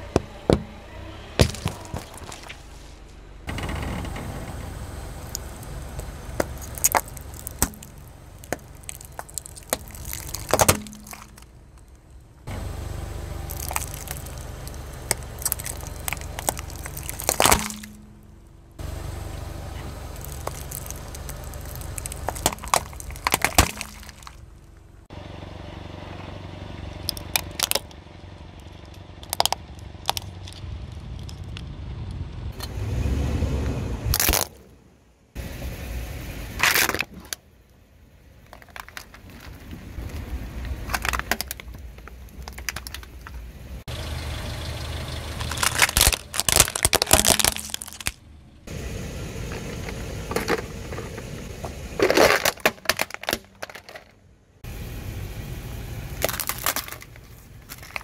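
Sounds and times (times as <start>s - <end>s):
low vehicle rumble: 0.0s - 58.0s
plastic tubs cracking and bursting: 1.4s - 2.6s, 5.3s - 12.1s, 13.4s - 18.3s, 20.0s - 24.7s, 27.1s - 28.0s, 28.8s - 31.6s, 38.5s - 43.4s, 45.4s - 48.2s, 52.0s - 54.2s, 56.2s - 58.0s.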